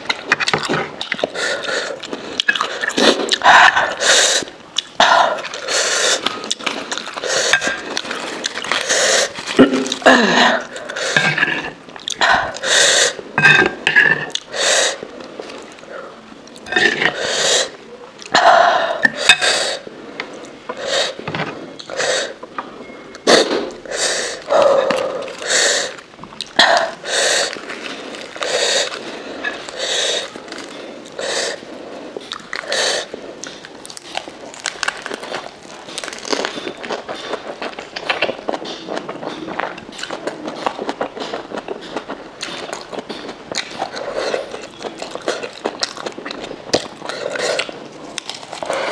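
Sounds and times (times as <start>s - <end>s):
chewing and crunching lettuce: 0.0s - 17.3s, 23.2s - 48.9s
lettuce leaves rustling: 26.9s - 31.8s.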